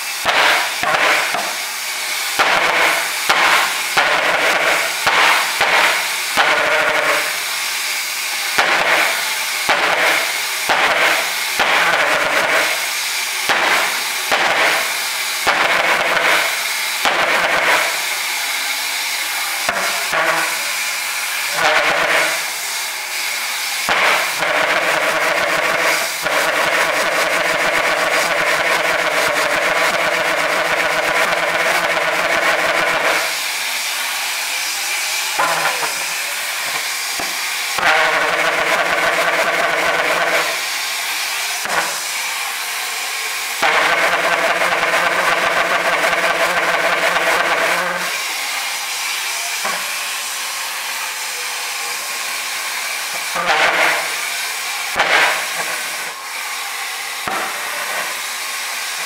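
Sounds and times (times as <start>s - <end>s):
hiss: 0.0s - 59.0s
sharp pops: 0.2s - 1.6s, 2.4s - 7.3s.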